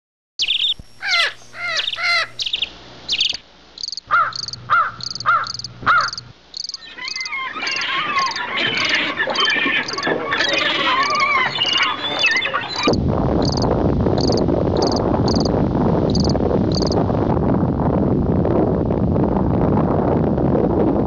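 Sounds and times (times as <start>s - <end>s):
dense bird chatter: 0.4s - 3.4s, 4.1s - 13.6s
loud arched whistles: 0.4s - 3.4s, 6.7s - 13.6s
high pulsed chirp: 0.4s - 7.3s, 11.0s - 15.5s, 16.1s - 17.0s
birds calling: 0.4s - 13.6s, 14.2s - 15.5s.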